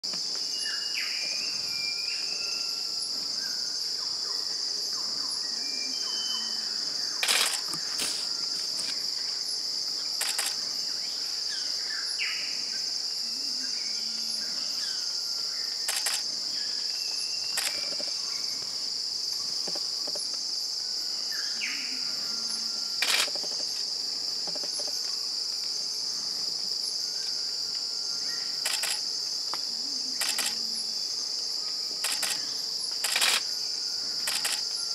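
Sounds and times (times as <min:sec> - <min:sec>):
insects droning: 0:00.0 - 0:34.9.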